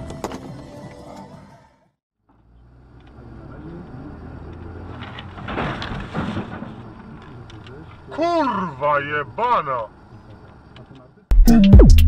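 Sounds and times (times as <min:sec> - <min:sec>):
car engine and road noise: 0:00.0 - 0:11.2
truck passing close: 0:01.0 - 0:10.2.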